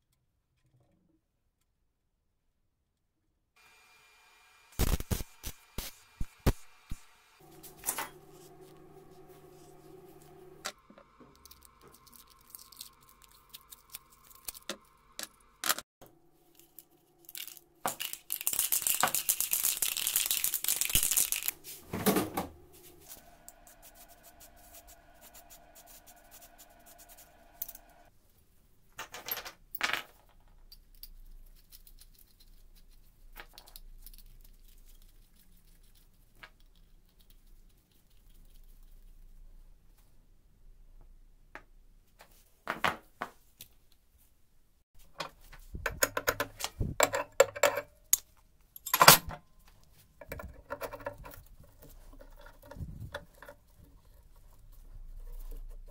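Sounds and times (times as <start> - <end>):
spray paint can rattling: 17.4 - 21.6
metal parts clinking on table: 47.0 - 49.4.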